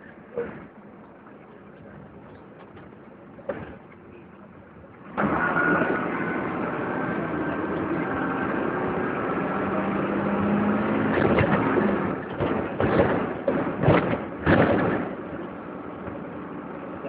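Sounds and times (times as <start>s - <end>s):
bus diesel engine: 0.0s - 17.0s
thud: 11.1s - 15.3s.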